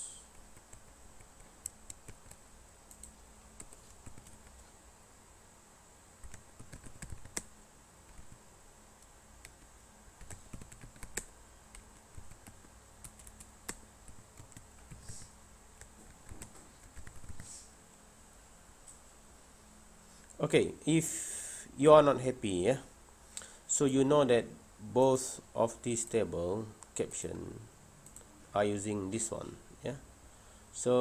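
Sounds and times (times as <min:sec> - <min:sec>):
computer keyboard typing: 0:00.3 - 0:04.6, 0:06.2 - 0:07.5, 0:08.1 - 0:08.4, 0:09.4 - 0:17.5.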